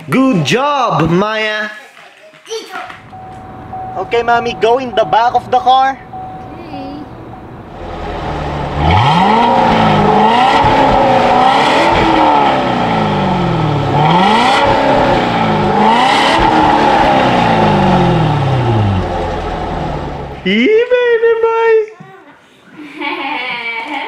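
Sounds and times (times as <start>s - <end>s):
car engine starting and revving: 3.0s - 6.5s, 7.1s - 20.5s.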